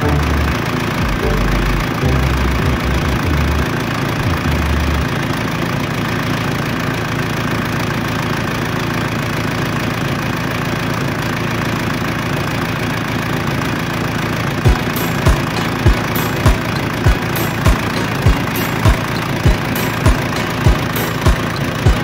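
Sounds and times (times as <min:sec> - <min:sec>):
diesel engine idling: 0:00.0 - 0:22.0.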